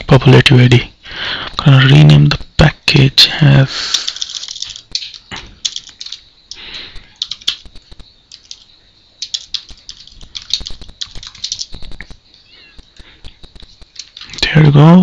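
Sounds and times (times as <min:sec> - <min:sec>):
computer keyboard typing: 0:03.9 - 0:14.6.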